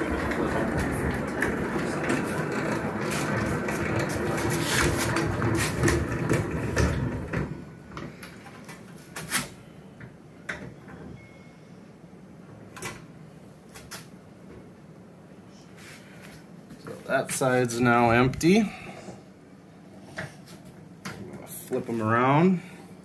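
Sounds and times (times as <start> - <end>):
honey extractor whirring and rattling: 0.0 - 8.9.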